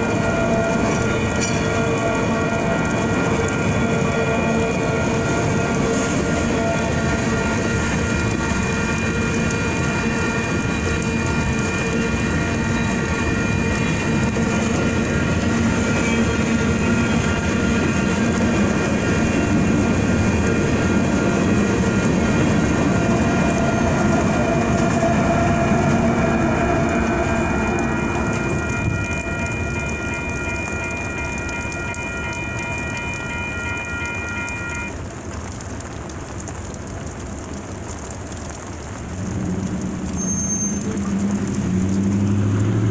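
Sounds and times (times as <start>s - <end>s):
freight train clattering over rails: 0.0s - 33.3s
crossing bells ringing: 0.0s - 35.0s
diesel locomotive passing: 0.0s - 42.9s
rain hiss: 0.0s - 42.9s.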